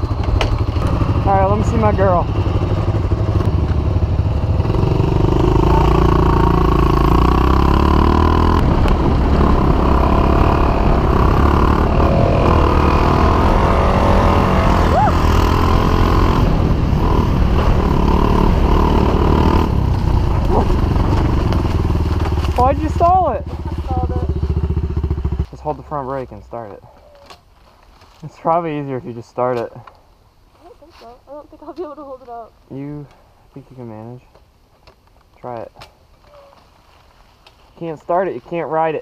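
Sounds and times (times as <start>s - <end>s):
dirt bike engine: 0.0s - 27.0s.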